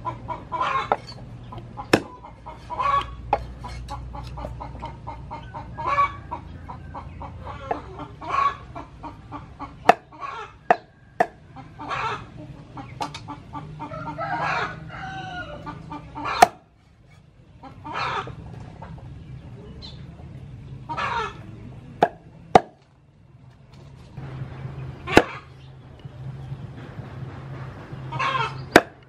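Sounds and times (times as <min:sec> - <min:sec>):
chickens clucking: 0:00.0 - 0:29.0
cleaver chopping on wooden board: 0:01.9 - 0:02.2, 0:09.9 - 0:11.4, 0:16.4 - 0:16.6, 0:22.0 - 0:22.8, 0:28.7 - 0:29.0
rooster crowing: 0:13.8 - 0:15.9.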